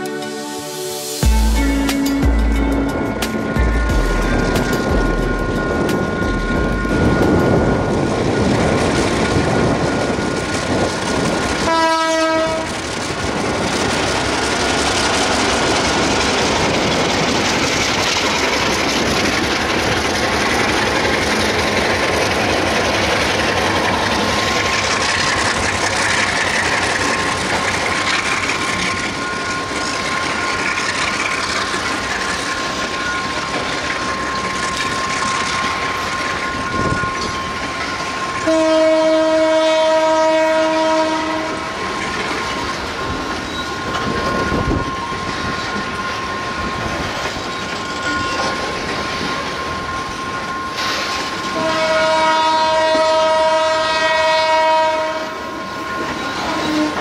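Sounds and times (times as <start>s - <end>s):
freight train rumbling and rattling: 1.0s - 57.0s
train horn blast: 11.6s - 12.8s, 38.4s - 41.8s, 51.5s - 55.5s, 56.4s - 57.0s.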